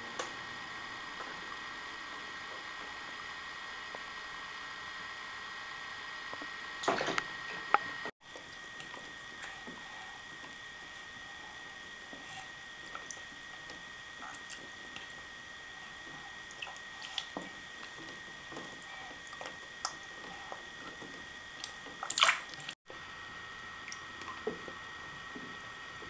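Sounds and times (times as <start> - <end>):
bathwater sloshing: 16.0 - 22.8
water drips: 16.4 - 21.0, 21.6 - 22.8.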